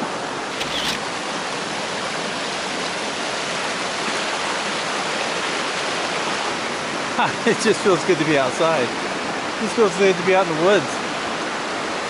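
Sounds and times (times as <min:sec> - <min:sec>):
creek rushing over rocks: 0:00.4 - 0:07.0.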